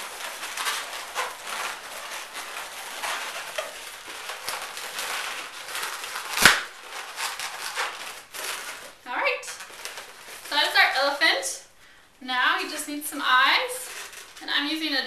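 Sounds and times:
balloons squeaking and rubbing: 0.0 - 11.8, 12.5 - 15.0
balloon snap: 6.3 - 6.8.

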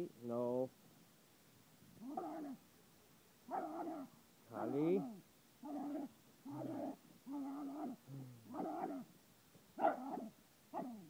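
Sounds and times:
small dog whining grumbles: 5.0 - 9.0.

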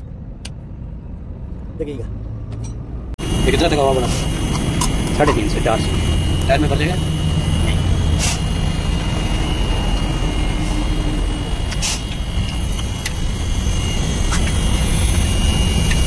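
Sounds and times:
diesel engine running: 0.0 - 16.0
faint high whine: 3.2 - 16.0.

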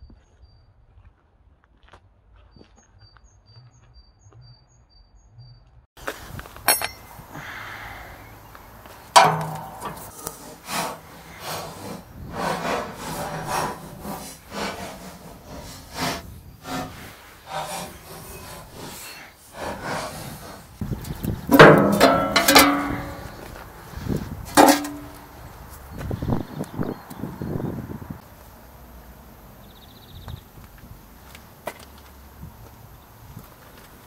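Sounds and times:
wrench scraping and knocking: 6.6 - 7.1, 9.1 - 23.5, 24.5 - 25.3.

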